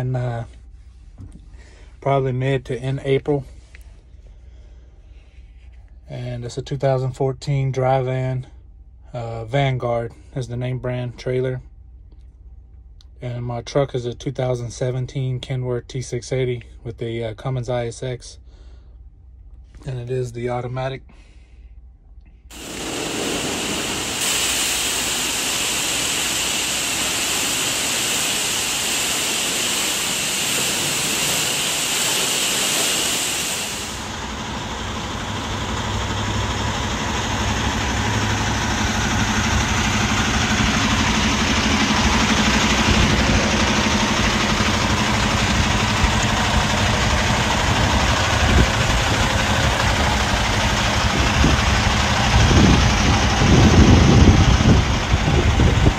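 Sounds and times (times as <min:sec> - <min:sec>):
high-pressure water spray hissing: 0:22.5 - 0:40.2
diesel truck engine idling: 0:22.5 - 0:55.9.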